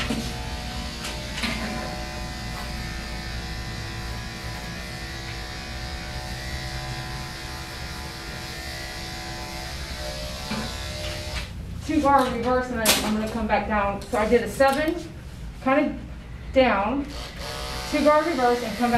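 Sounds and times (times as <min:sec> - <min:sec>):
electric clippers buzzing: 0:00.0 - 0:11.6, 0:17.0 - 0:18.9.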